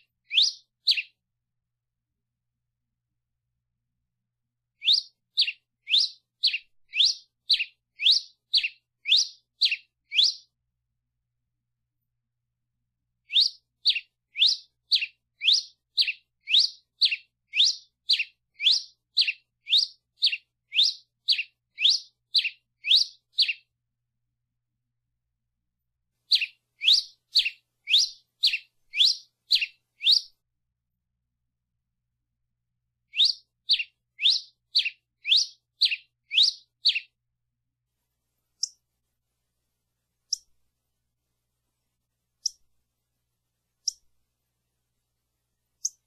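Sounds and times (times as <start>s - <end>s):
finch chirping: 0.0s - 1.1s, 4.8s - 10.4s, 13.3s - 23.6s, 26.3s - 30.3s, 33.1s - 37.1s.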